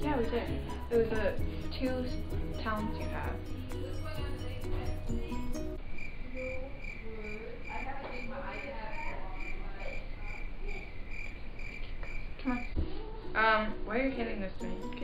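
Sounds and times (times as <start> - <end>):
cricket chirping: 5.8 - 12.8.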